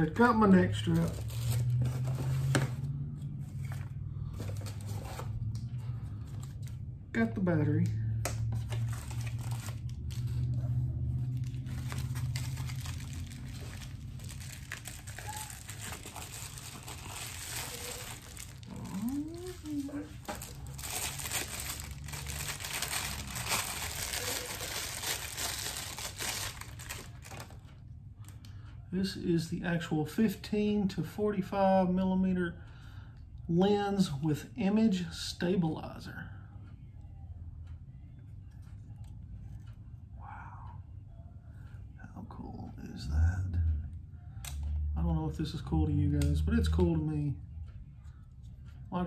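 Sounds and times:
steady low hum: 0:00.0 - 0:49.0
packaging rustling: 0:08.6 - 0:27.6
plastic bag crinkling: 0:11.2 - 0:27.6.

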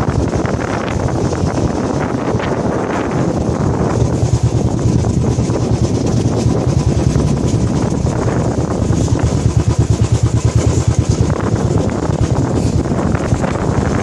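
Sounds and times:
single-cylinder motorcycle engine running: 0:00.0 - 0:14.0
wind buffeting microphone: 0:00.0 - 0:14.0.

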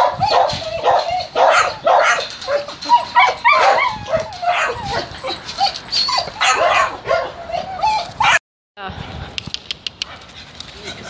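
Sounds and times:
dogs barking and yipping: 0:00.0 - 0:08.4
dogs whining: 0:00.0 - 0:08.4.

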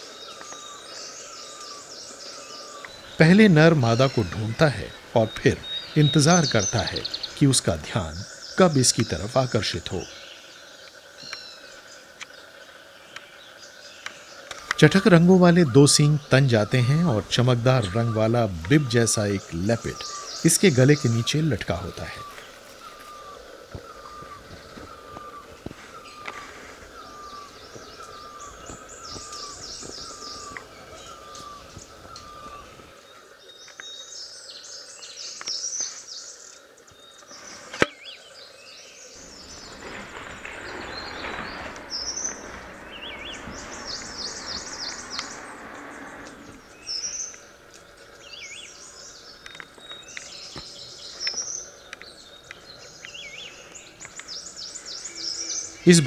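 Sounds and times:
small birds chirping: 0:00.0 - 0:56.0
broad rushing noise: 0:39.2 - 0:47.7.

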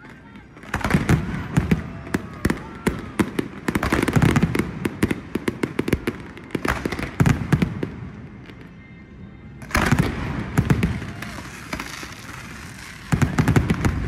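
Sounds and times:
fireworks bangs and crackles: 0:00.0 - 0:14.0.

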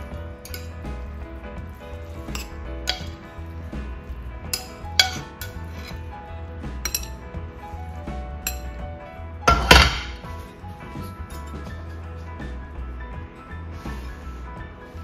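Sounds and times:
soft background music: 0:00.0 - 0:15.0
metal tongs clinking on pan: 0:00.4 - 0:00.8, 0:02.3 - 0:03.2, 0:04.5 - 0:05.6.

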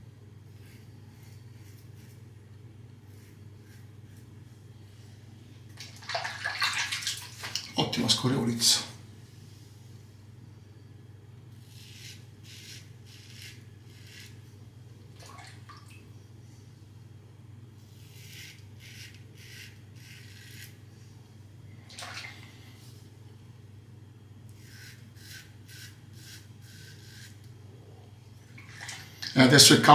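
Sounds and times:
razor scraping stubble: 0:00.5 - 0:02.4, 0:03.0 - 0:04.3, 0:11.6 - 0:14.4, 0:17.9 - 0:20.8, 0:24.5 - 0:27.5
water splash: 0:05.8 - 0:07.7, 0:21.9 - 0:22.4, 0:28.6 - 0:29.3.

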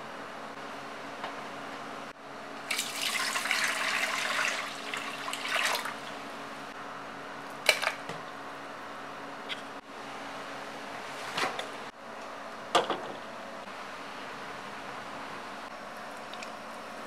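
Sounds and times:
water pouring into saucepan: 0:02.7 - 0:06.1.

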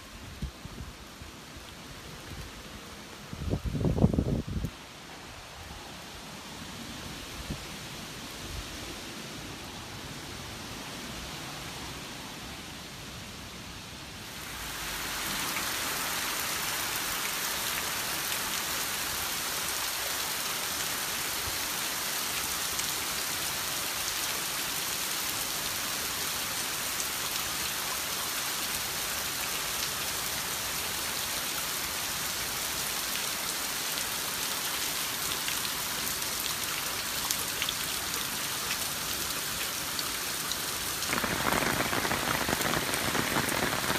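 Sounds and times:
heavy rain falling: 0:14.2 - 0:43.9.

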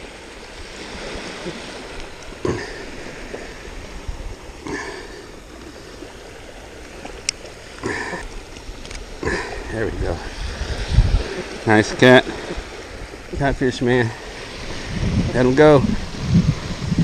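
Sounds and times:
small waves on sandy beach: 0:00.0 - 0:17.0.

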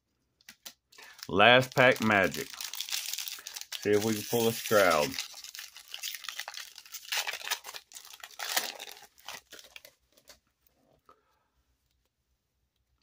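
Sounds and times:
foil wrapper crinkling: 0:00.5 - 0:10.4.

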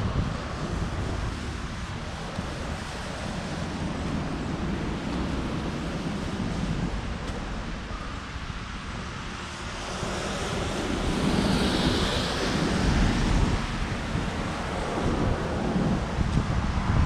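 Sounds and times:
wind rumbling on microphone: 0:00.0 - 0:17.0.

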